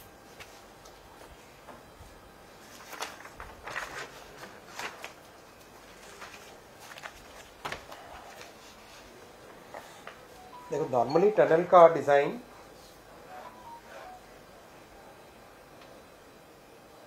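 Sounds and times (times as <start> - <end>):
faint room hiss: 0.0 - 17.0
paper rustling: 2.6 - 9.2.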